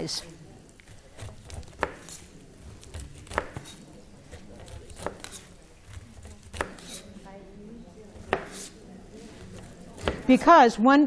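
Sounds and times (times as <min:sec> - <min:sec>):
knife cutting pineapple rind: 0:00.6 - 0:10.4
knife knocking on cutting board: 0:08.2 - 0:08.7.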